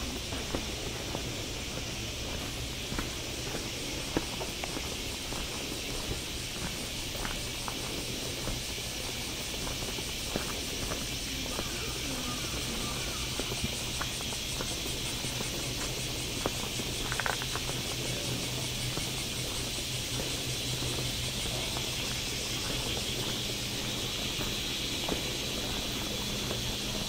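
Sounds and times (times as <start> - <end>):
insects chirping: 0.0 - 27.0
soft footsteps: 0.0 - 27.0.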